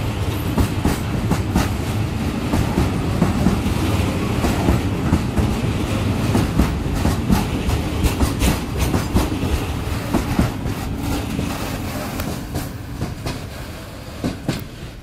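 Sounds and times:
low train rumble: 0.0s - 15.0s
train wheels clacking over rail joints: 0.0s - 15.0s.

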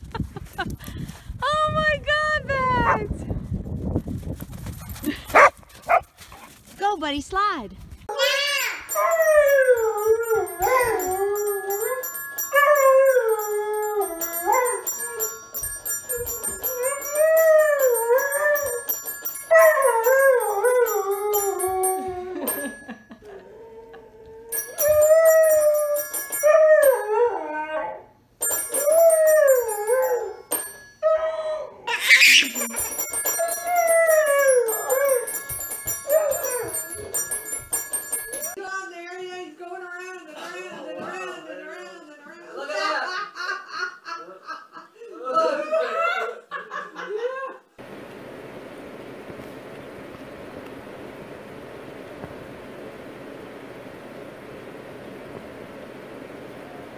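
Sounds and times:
toy keyboard notes: 8.2s - 23.0s, 24.5s - 27.2s, 28.4s - 31.0s, 32.1s - 38.6s
dog howling: 8.9s - 15.4s, 19.6s - 22.4s.

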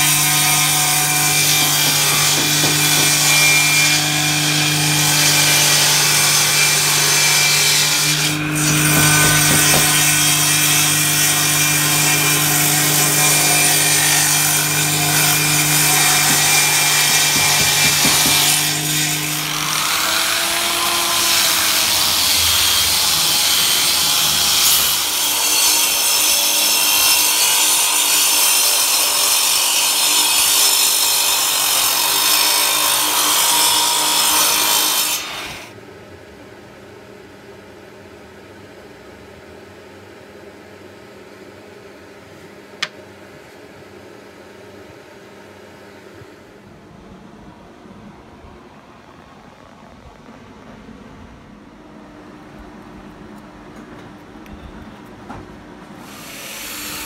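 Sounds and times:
table saw ripping wood: 0.0s - 25.9s.

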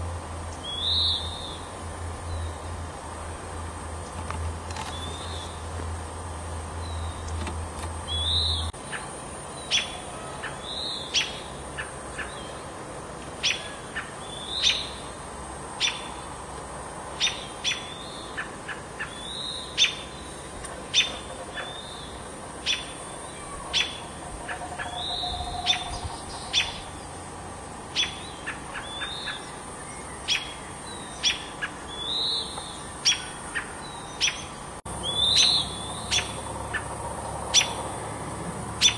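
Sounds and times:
slurred bird call: 21.0s - 26.9s.

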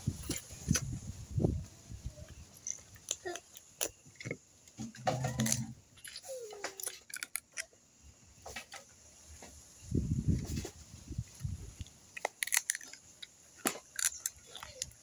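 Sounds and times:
crab shells cracking: 6.8s - 7.7s, 12.1s - 15.0s.

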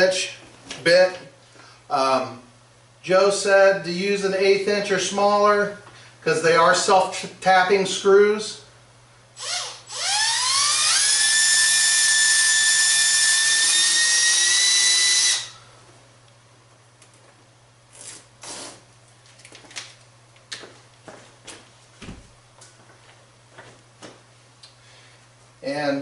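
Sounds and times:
cordless drill motor whine: 9.4s - 15.6s.

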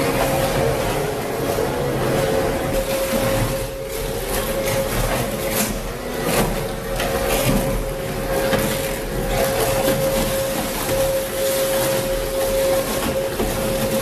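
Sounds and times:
shredder motor hum: 0.0s - 14.0s.

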